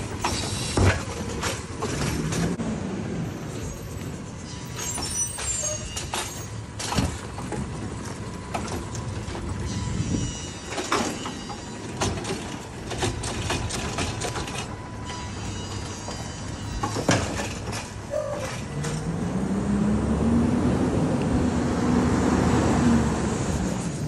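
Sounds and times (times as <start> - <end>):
hydraulic arm knocks and clanks: 4.9 - 9.6, 10.7 - 14.8, 15.7 - 19.1.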